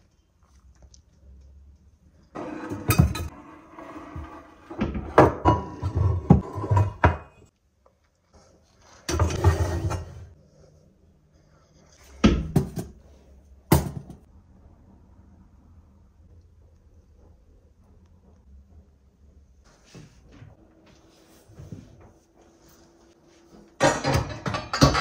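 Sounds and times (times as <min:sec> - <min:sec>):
cookware clattering on shelf: 0:02.4 - 0:07.4, 0:09.1 - 0:10.3, 0:13.7 - 0:14.3, 0:23.8 - 0:25.0.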